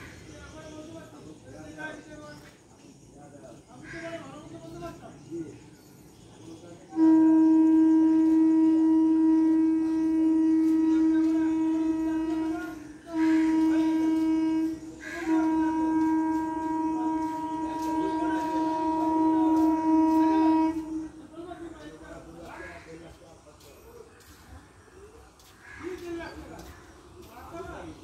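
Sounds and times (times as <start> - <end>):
train air horn blasts: 6.9 - 22.6.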